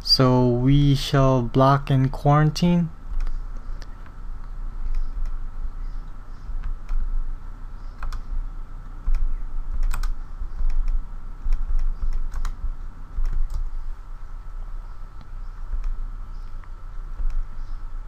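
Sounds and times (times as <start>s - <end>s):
low electrical hum: 0.0s - 18.0s
keyboard keystrokes: 8.0s - 8.2s, 9.0s - 12.6s, 13.2s - 13.7s
mouse clicks: 8.0s - 8.3s, 15.2s - 17.4s.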